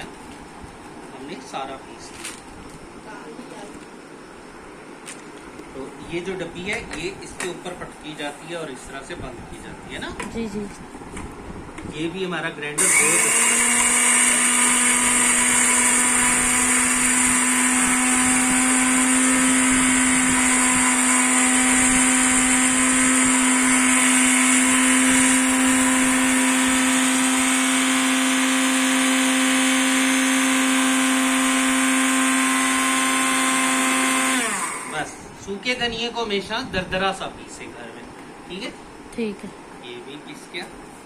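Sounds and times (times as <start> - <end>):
electric spice grinder running: 12.8 - 35.2.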